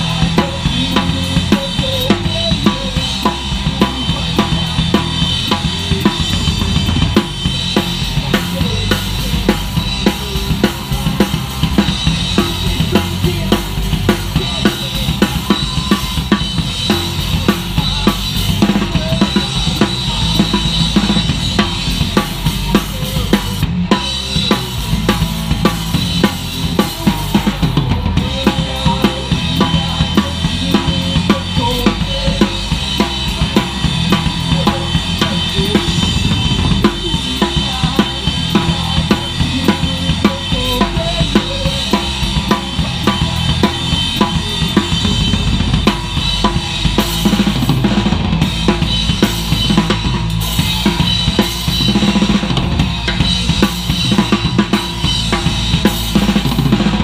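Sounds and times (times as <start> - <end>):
drum kit beat: 0.0 - 57.0
punk band playing live: 0.0 - 57.0.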